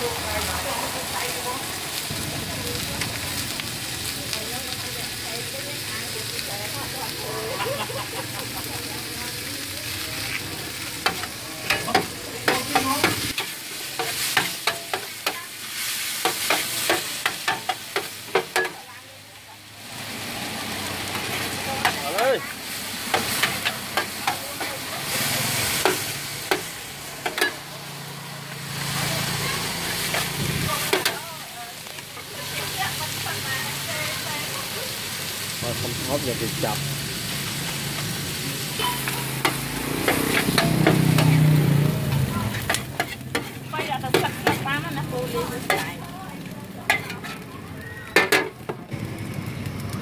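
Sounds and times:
noodles sizzling in a wok: 0.0s - 50.0s
metal spatula scraping a griddle: 10.2s - 18.8s, 21.1s - 27.6s, 30.0s - 31.3s, 38.8s - 46.1s, 46.8s - 47.6s
spatula tapping and scraping pan: 11.0s - 15.4s, 16.2s - 18.8s, 38.9s - 41.4s, 42.5s - 44.7s, 46.9s - 47.4s, 48.2s - 48.8s.

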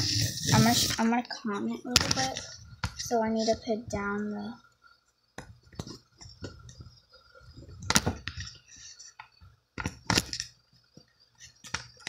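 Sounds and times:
clicks and knocks of small objects: 9.2s - 10.6s.

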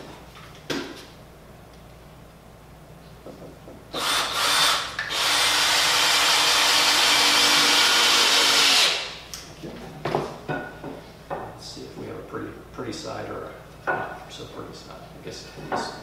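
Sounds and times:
cordless drill running into wood: 3.9s - 9.2s.

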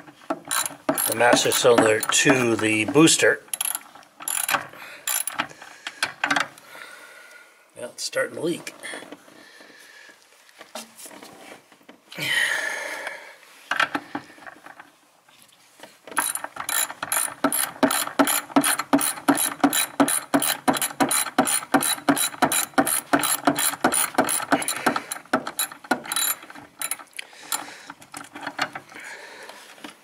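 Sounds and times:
socket ratchet clicking: 0.5s - 2.6s, 3.5s - 5.4s, 16.2s - 27.7s.

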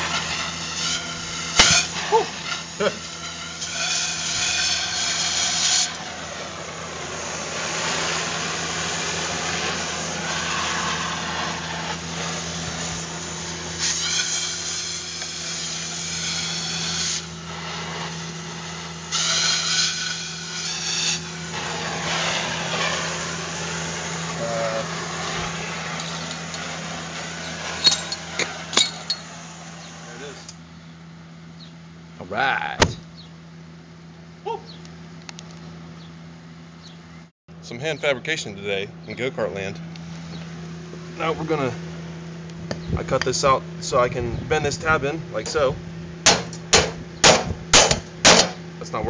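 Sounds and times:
cutting torch hissing: 0.0s - 30.6s, 41.1s - 41.8s, 42.5s - 49.0s
steady low hum: 0.0s - 49.0s.

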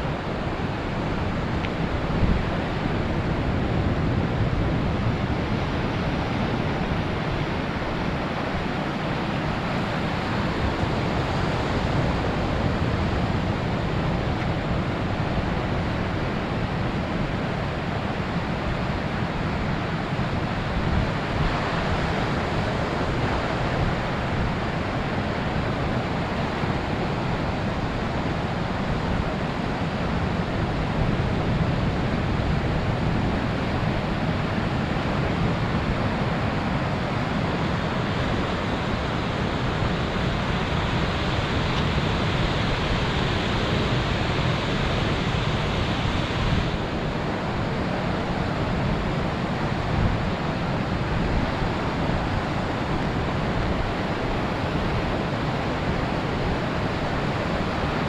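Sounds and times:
wind noise on microphone: 0.0s - 58.0s
ocean surf breaking: 17.9s - 58.0s.

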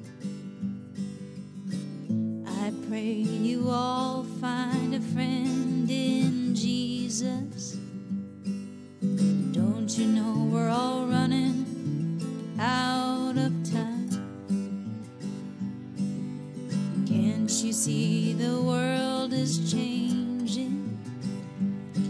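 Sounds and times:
strummed acoustic guitar: 0.0s - 22.0s
person singing: 2.5s - 7.9s, 9.5s - 11.8s, 12.6s - 14.2s, 17.0s - 21.0s.

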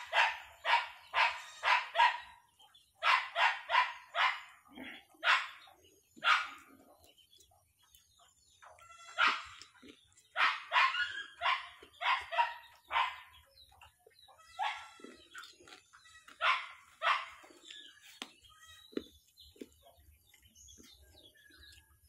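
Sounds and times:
dog barking: 0.0s - 6.8s, 9.2s - 13.6s, 14.5s - 15.2s, 16.3s - 17.7s.

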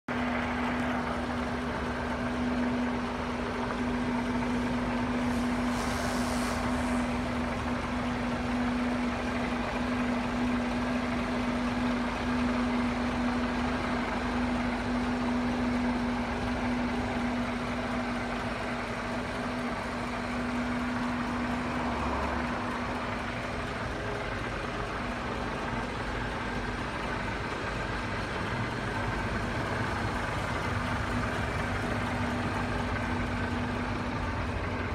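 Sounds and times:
truck diesel engine idling: 0.1s - 34.9s
brief hiss: 5.2s - 7.2s.

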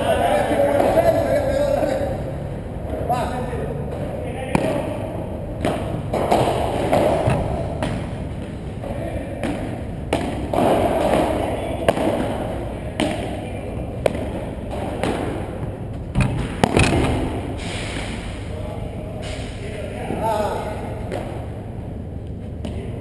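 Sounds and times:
ball struck by rackets: 5.6s - 8.8s, 9.4s - 13.4s, 14.0s - 18.2s.

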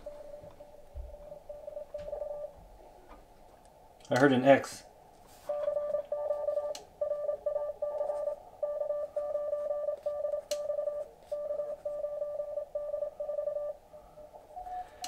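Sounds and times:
morse code tone: 0.0s - 2.5s, 5.5s - 13.8s.

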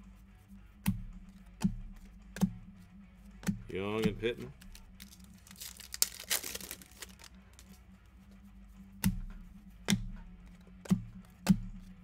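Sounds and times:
low steady hum: 0.0s - 12.0s
cards being handled: 3.4s - 7.9s.

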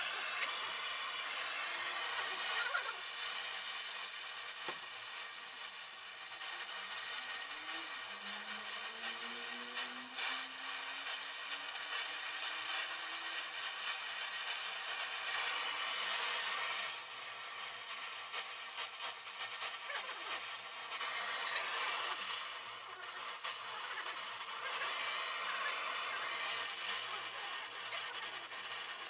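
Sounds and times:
welding torch flame hissing: 0.0s - 29.0s.

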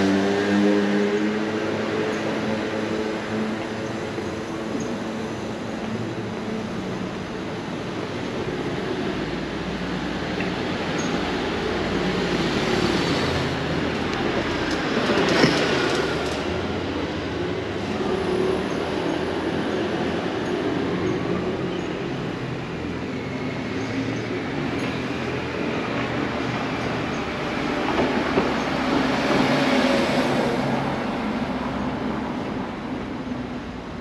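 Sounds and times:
street noise: 0.0s - 34.0s.

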